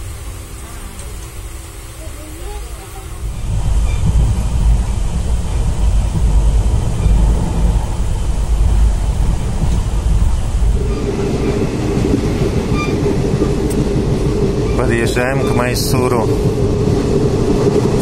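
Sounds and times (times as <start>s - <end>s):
train rumble: 0.0s - 18.0s
higher drone: 3.1s - 18.0s.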